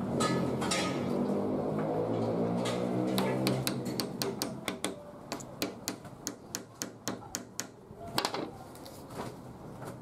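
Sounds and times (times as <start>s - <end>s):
small hammer tapping pins: 3.1s - 7.8s.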